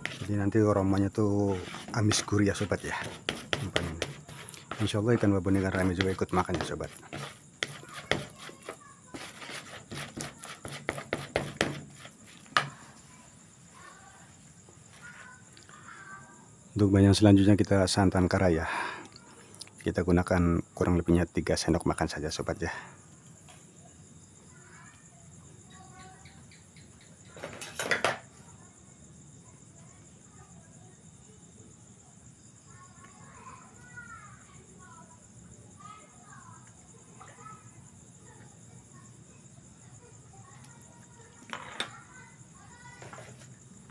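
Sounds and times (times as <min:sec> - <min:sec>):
plastic paddle scraping a bowl: 0:00.0 - 0:00.4, 0:01.5 - 0:12.7
crickets trilling: 0:00.0 - 0:43.9
paddle knocking on bowl: 0:05.7 - 0:12.7
plastic rustling and scraping: 0:42.9 - 0:43.6.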